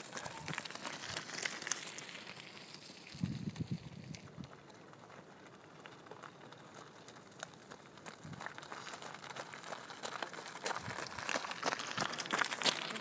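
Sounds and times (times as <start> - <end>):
bicycle tyres on gravel: 0.0 - 13.0
footsteps on gravel: 0.0 - 13.0.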